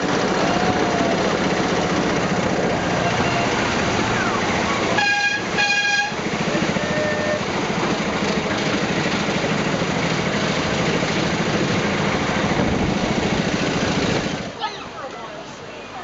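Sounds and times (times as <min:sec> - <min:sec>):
ride-on train engine rumble: 0:00.0 - 0:16.0
train toots: 0:02.9 - 0:03.8, 0:04.7 - 0:07.5.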